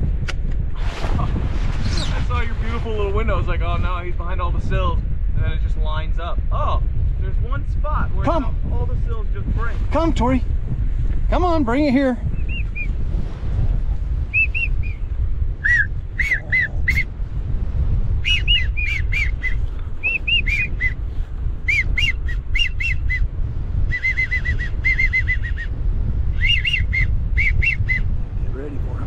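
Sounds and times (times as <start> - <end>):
wind on microphone: 0.0 - 29.0
whistled duck calls: 14.3 - 15.0, 15.6 - 17.1, 18.2 - 21.0, 21.7 - 23.3, 23.9 - 25.7, 26.4 - 28.1.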